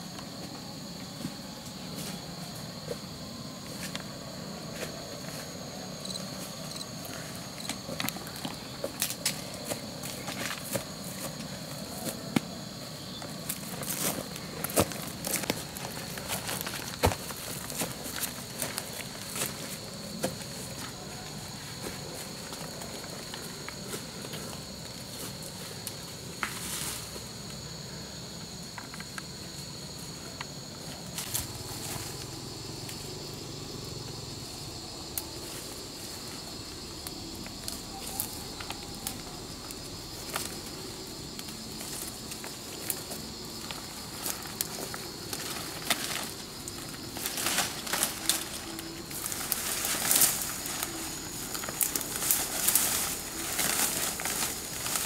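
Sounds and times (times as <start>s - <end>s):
high insect drone: 0.0s - 55.0s
leaves rustling and stems snapping: 13.4s - 21.0s, 37.0s - 55.0s.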